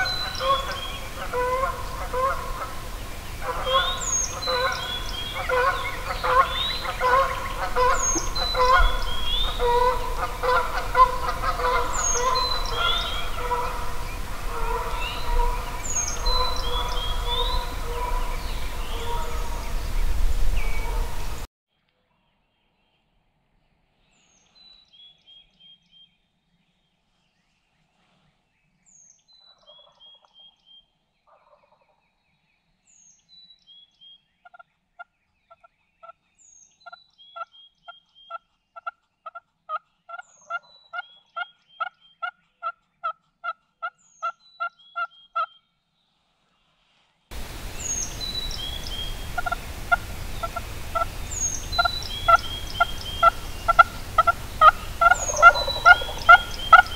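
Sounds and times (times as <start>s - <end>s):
turkey yelps: 0.0s - 2.8s, 3.4s - 19.7s, 48.8s - 56.9s
songbird high song: 0.0s - 21.5s, 22.2s - 31.0s, 32.1s - 39.3s, 44.0s - 46.2s, 47.3s - 56.9s
steady hiss: 0.0s - 21.5s, 46.3s - 56.9s.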